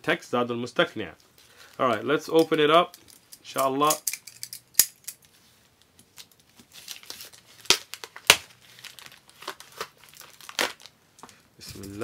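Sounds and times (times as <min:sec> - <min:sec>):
plastic wrap crackling: 0:05.8 - 0:12.0
plastic wrap snapping: 0:06.0 - 0:11.0.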